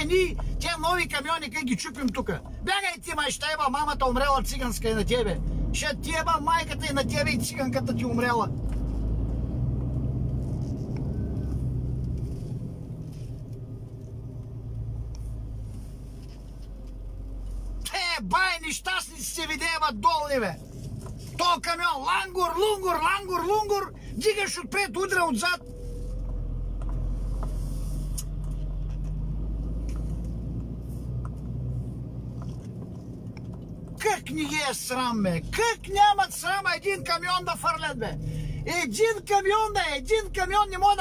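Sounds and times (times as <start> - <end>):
lorry diesel engine rumble: 0.0 - 41.0
road noise: 0.0 - 41.0
cab clicks and rattles: 32.2 - 34.7.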